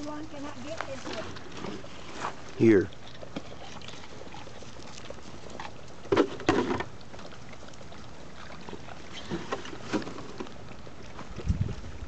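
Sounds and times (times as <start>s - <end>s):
rustling through dry leaves: 0.0s - 6.8s
puppies chewing: 0.0s - 12.0s.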